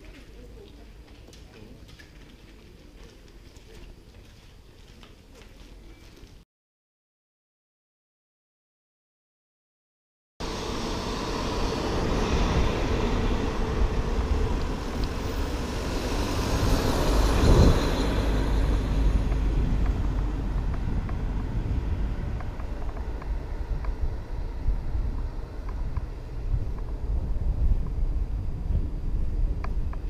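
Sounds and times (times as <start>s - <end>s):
bicycle tyre hum on asphalt: 10.4s - 30.0s
wind rushing over microphone: 10.4s - 30.0s.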